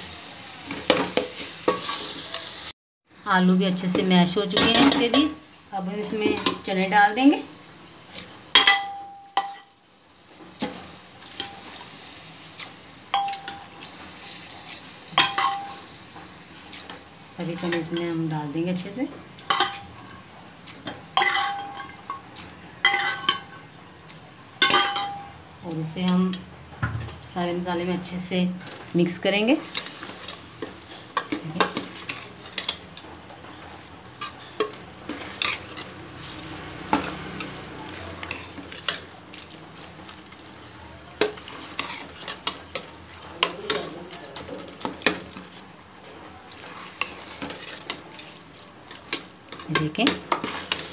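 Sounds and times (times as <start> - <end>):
faint sizzle of frying: 0.0 - 50.9
metal ladle scraping pot: 21.2 - 22.0, 22.8 - 23.5.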